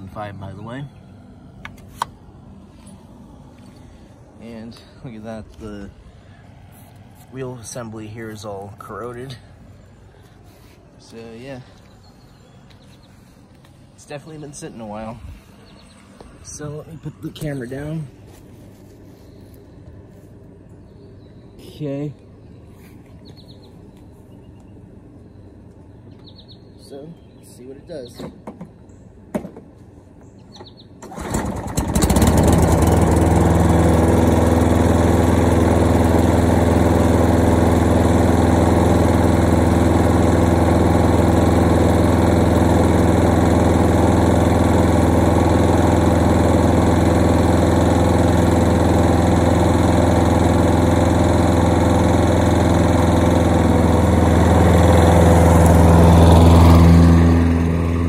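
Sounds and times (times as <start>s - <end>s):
lawn mower engine pull-started: 30.7s - 58.0s.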